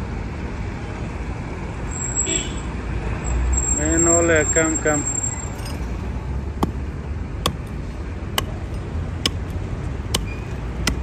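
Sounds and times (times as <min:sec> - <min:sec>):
low traffic rumble: 0:00.0 - 0:11.0
hatchet chopping wood: 0:06.5 - 0:11.0.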